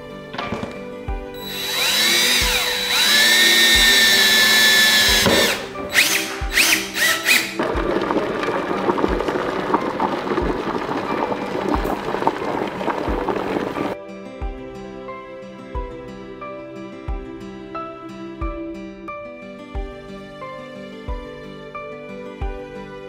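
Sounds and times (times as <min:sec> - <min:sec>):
soft background music: 0:00.0 - 0:23.0
cordless drill driving screws: 0:01.4 - 0:07.6.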